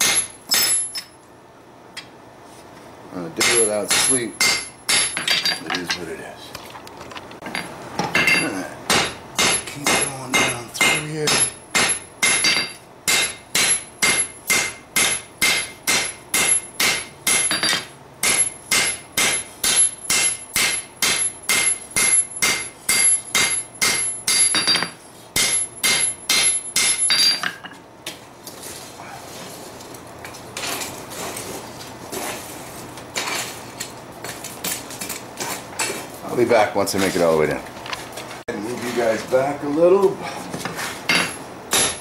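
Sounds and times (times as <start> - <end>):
hammer striking metal on anvil: 0.0 - 1.1, 3.4 - 6.0, 7.5 - 27.7, 41.1 - 42.0
workshop noises: 0.0 - 42.0.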